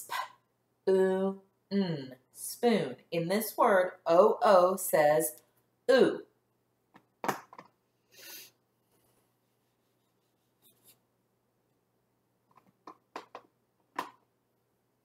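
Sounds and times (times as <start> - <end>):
whiteboard being wiped: 8.9 - 11.0.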